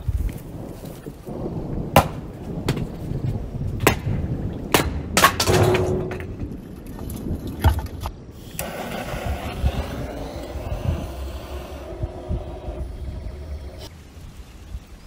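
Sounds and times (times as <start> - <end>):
axe splitting firewood: 4.7 - 6.4
split wood clattering: 4.7 - 8.0.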